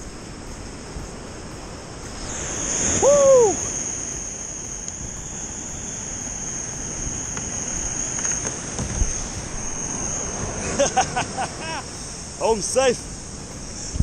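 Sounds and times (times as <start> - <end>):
surf washing: 0.0 - 14.0
wind on microphone: 0.0 - 14.0
man whooping: 2.9 - 3.7, 10.9 - 11.9.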